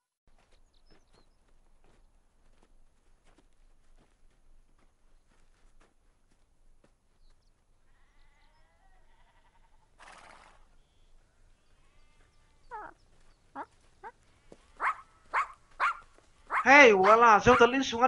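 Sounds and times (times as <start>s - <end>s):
faint sheep bleats: 7.8s - 10.0s, 10.8s - 13.0s
dog yelps: 14.8s - 17.8s.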